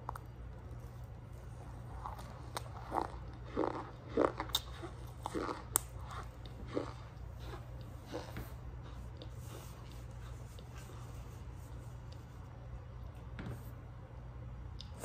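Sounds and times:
cornstarch being chewed: 0.0s - 11.0s.

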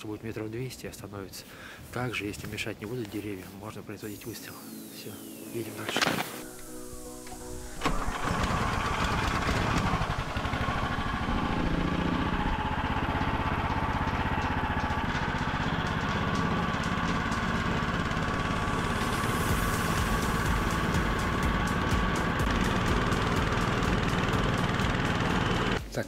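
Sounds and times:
small engine running under load: 7.1s - 25.8s.

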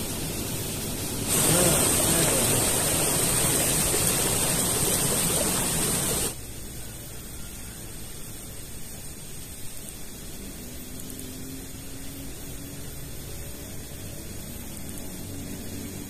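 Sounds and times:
water rushing along a channel: 0.0s - 6.5s.

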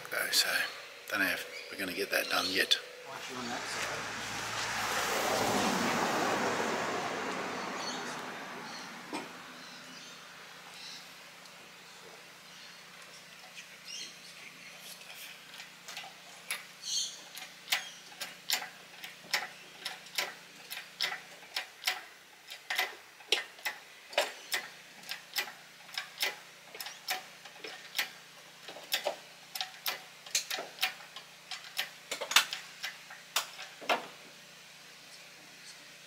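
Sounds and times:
hydraulic hoist pump clicking: 17.3s - 33.8s.

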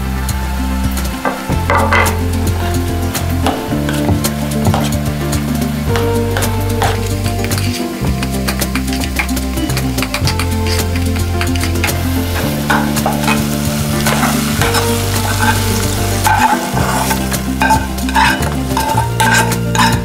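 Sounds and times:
background music with bass line: 0.0s - 20.0s
scraping food out of a pan: 1.8s - 20.0s
metal spoon scraping in ceramic bowl: 10.0s - 12.0s, 12.7s - 20.0s.

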